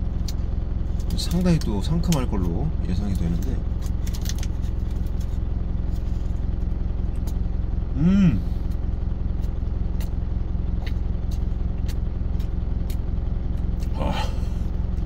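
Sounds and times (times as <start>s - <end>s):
truck engine idling: 0.0s - 15.0s
man humming while chewing: 7.8s - 8.8s, 13.8s - 14.8s.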